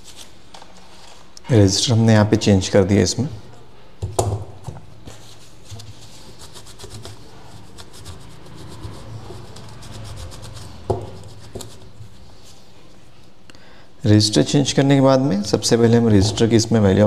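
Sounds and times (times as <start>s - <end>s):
rubbing and scraping: 5.1s - 12.7s.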